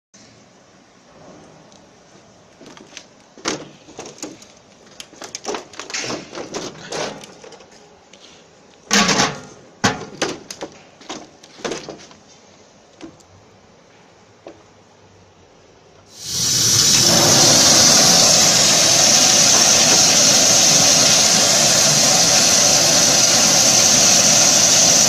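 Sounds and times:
metal lid and drum clattering: 8.9s - 10.4s.

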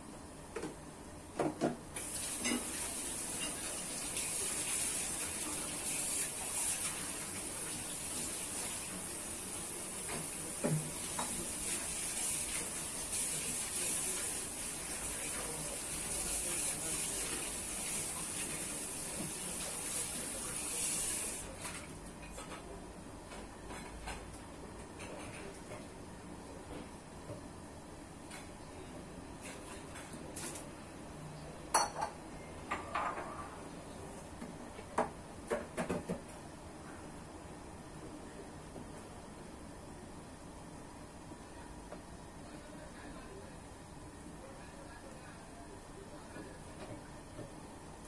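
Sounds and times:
water running from a tap: 2.0s - 21.5s.

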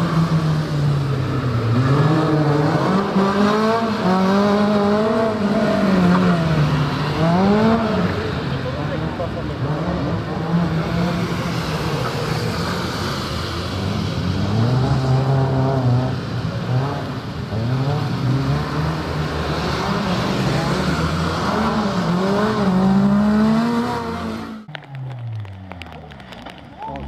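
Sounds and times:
car engine revving hard: 14.2s - 24.6s.

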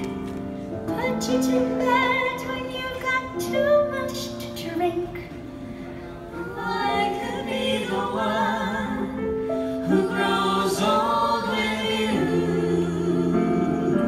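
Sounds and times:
keyboard sustained chords: 0.0s - 14.0s
vocal ensemble singing in harmony: 6.0s - 14.0s.

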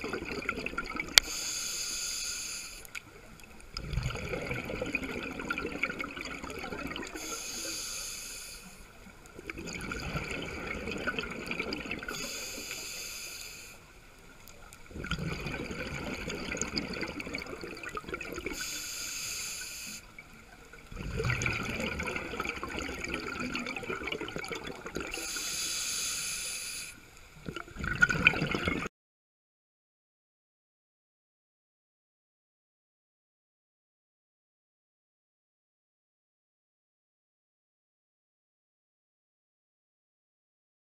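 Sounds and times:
exhaled bubbles underwater: 0.0s - 1.3s, 3.2s - 7.6s, 9.4s - 12.7s, 14.8s - 18.6s, 20.2s - 25.4s, 27.4s - 28.9s
regulator inhale hiss: 1.2s - 2.9s, 7.1s - 9.0s, 12.1s - 13.9s, 18.5s - 20.2s, 25.1s - 27.1s.

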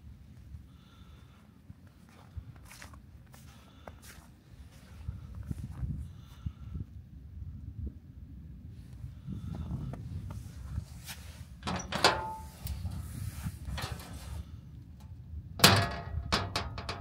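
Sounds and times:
metal door clank: 11.6s - 12.9s, 13.7s - 14.3s, 15.6s - 17.0s
metal door bang: 15.6s - 17.0s.

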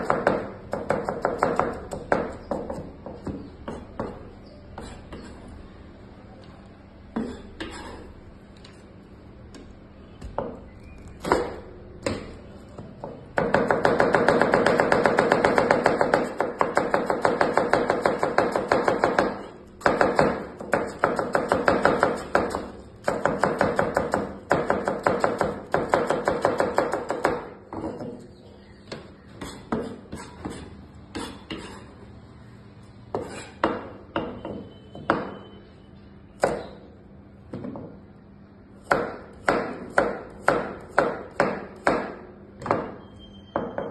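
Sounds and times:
knife chopping on cutting board: 11.2s - 12.4s, 28.9s - 31.8s, 33.1s - 35.4s.

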